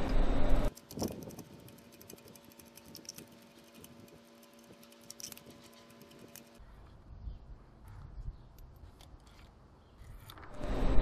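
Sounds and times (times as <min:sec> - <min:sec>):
ratchet clicking: 0:00.7 - 0:06.6.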